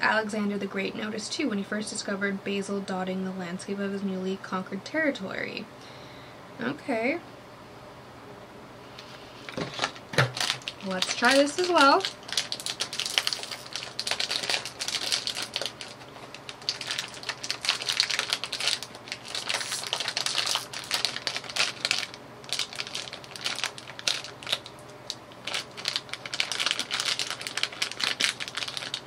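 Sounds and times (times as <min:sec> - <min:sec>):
snack bag crinkling: 0:09.4 - 0:29.0.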